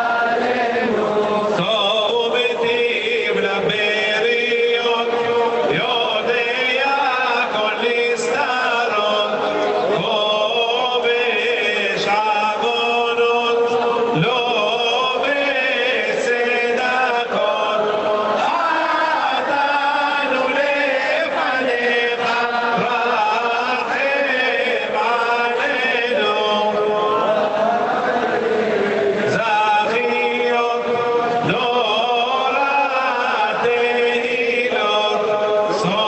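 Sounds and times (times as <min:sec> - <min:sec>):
crowd chanting prayers in unison: 0:00.0 - 0:36.0.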